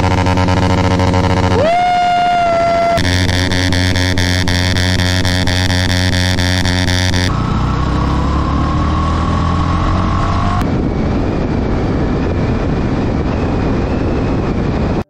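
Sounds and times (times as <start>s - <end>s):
motorcycle engine: 0.0s - 14.9s
wind rush: 7.3s - 15.0s.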